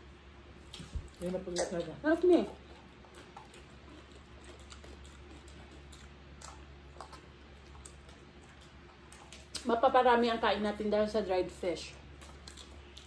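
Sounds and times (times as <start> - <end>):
low steady hum: 0.0 - 13.0
people chewing: 0.6 - 9.9, 12.0 - 13.0.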